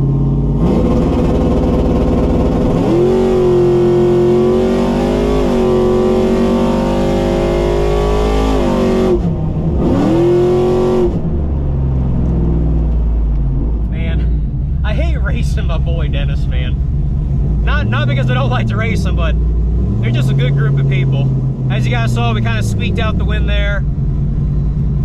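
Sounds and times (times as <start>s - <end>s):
engine at full throttle: 0.0s - 25.0s.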